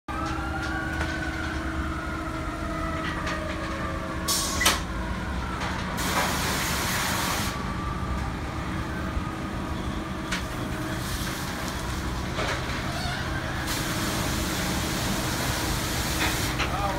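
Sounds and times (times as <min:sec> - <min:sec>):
car wash machinery hum: 0:05.9 - 0:16.9.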